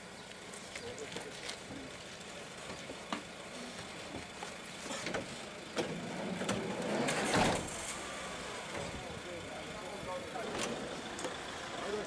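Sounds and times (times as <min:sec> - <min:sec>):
people climbing into a van: 0:00.6 - 0:08.0, 0:08.6 - 0:09.3, 0:10.2 - 0:11.4
sliding van door slamming: 0:05.8 - 0:08.0.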